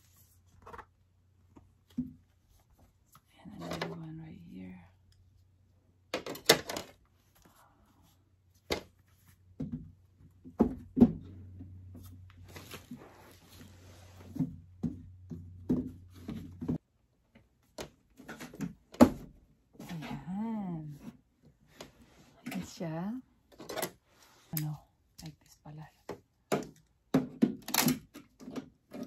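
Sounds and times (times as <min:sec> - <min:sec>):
rustling: 0:11.8 - 0:14.5.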